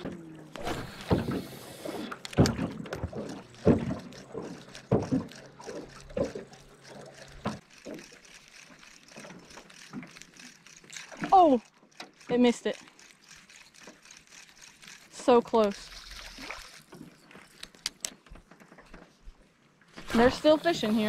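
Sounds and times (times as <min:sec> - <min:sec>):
waves lapping against boat hull: 0:00.0 - 0:08.1.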